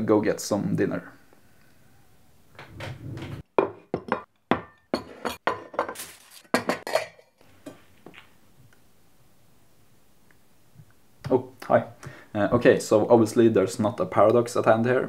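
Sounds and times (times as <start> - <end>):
dishes and cutlery clinking: 3.7 - 7.8.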